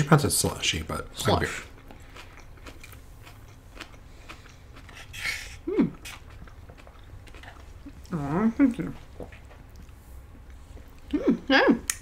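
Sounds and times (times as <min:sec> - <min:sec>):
soft chewing clicks: 0:01.6 - 0:05.1, 0:06.0 - 0:08.2, 0:08.9 - 0:11.2
person humming mm: 0:05.6 - 0:06.0.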